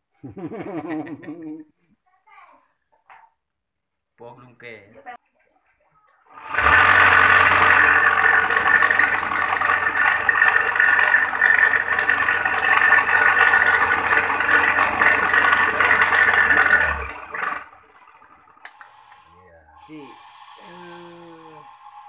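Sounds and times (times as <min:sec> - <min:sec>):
electric grater motor whining: 0:06.3 - 0:19.2.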